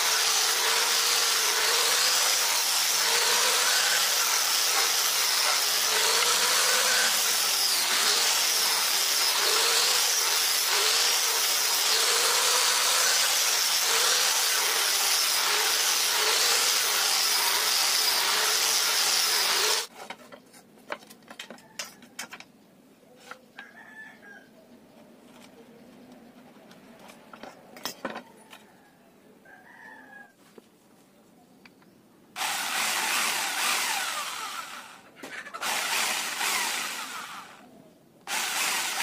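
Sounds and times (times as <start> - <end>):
angle grinder sanding wood: 0.0 - 19.9, 32.4 - 37.6, 38.3 - 39.0.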